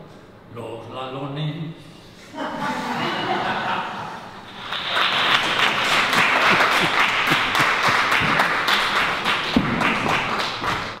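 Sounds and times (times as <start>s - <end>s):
people talking: 0.5s - 1.8s
audience applauding: 4.4s - 11.0s.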